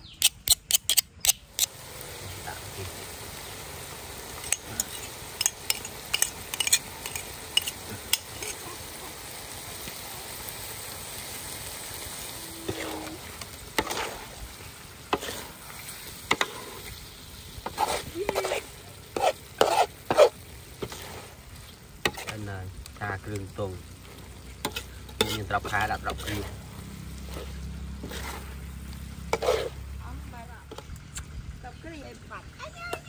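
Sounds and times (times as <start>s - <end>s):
food sizzling in a pan: 1.4s - 33.0s
metal utensil scraping pan: 4.4s - 8.7s, 12.6s - 14.4s, 15.1s - 17.0s, 17.6s - 22.4s, 23.5s - 30.9s.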